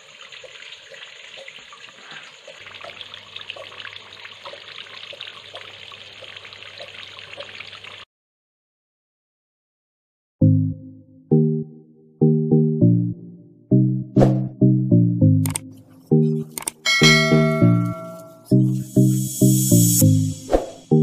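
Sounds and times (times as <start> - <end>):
water trickling into pebble basin: 0.0 - 8.1.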